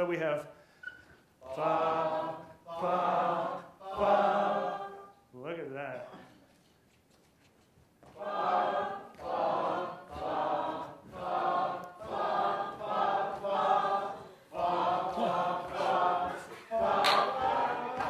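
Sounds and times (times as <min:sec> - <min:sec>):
audience singing in unison: 0:01.4 - 0:05.2, 0:08.2 - 0:18.0.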